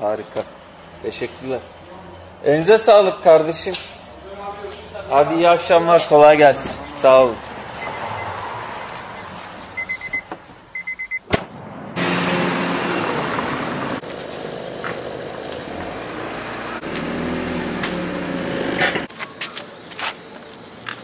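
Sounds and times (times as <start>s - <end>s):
car warning chime beeps: 7.8s - 8.4s, 9.1s - 11.2s
car engine running: 12.0s - 19.1s.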